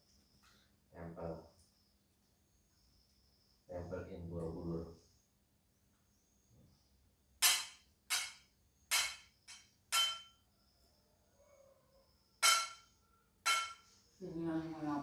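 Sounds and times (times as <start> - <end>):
tableware clinking: 7.4 - 10.3, 12.4 - 12.9, 13.5 - 13.9.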